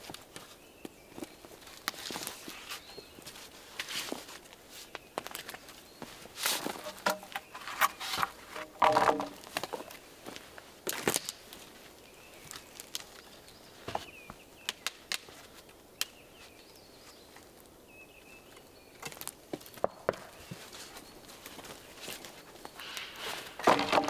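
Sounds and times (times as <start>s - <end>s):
footsteps on forest litter: 0.0s - 14.5s, 18.1s - 24.0s
wooden planks knocking: 6.8s - 9.4s, 23.6s - 24.0s
bird chirping: 16.0s - 21.5s.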